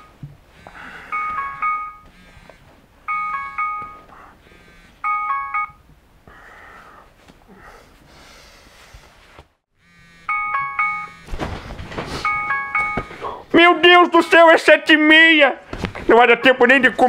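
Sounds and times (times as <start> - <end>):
phone alarm chime: 0.8 - 2.4, 3.1 - 5.8, 9.8 - 11.4, 12.1 - 14.7
bedding rustling: 10.5 - 14.3, 15.6 - 16.2.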